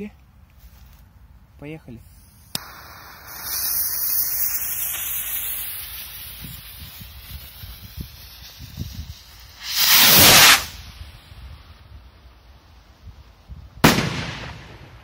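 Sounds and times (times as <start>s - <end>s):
firework rocket hissing: 2.0s - 12.0s
firework bang: 6.4s - 10.9s, 13.8s - 15.0s.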